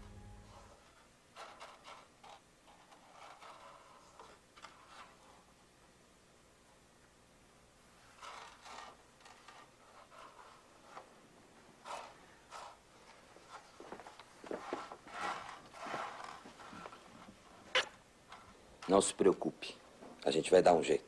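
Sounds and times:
beans scraping across wooden table: 8.1 - 11.1, 11.8 - 17.0.

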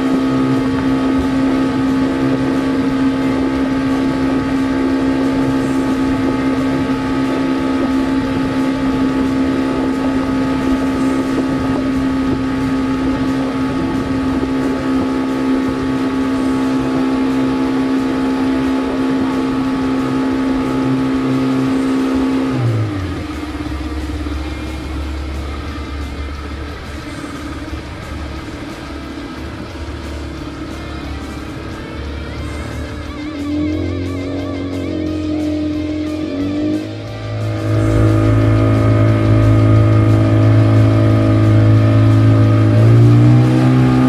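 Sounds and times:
outboard motor running: 0.0 - 44.0.

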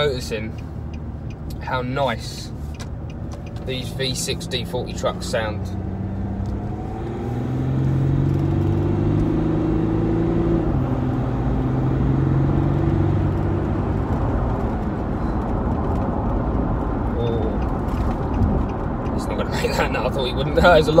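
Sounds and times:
engine heard from inside vehicle: 0.0 - 21.0.

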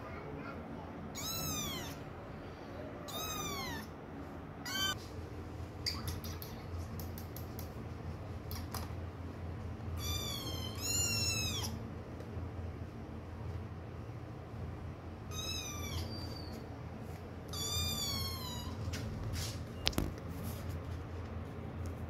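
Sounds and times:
kitten meowing: 1.1 - 2.0, 3.1 - 3.9, 4.6 - 5.0, 10.0 - 11.8, 15.3 - 16.6, 17.5 - 18.8.

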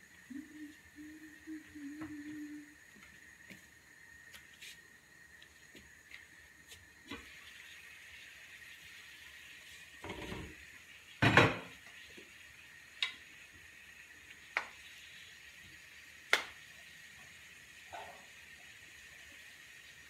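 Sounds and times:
wooden spoon stirring in frying pan: 5.4 - 13.6, 14.2 - 20.0.

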